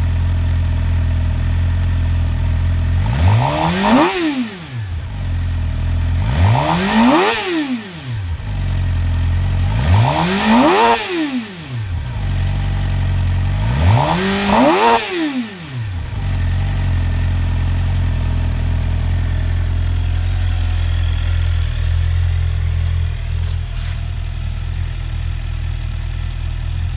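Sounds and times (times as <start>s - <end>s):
motorcycle engine revving and idling: 0.0s - 26.9s.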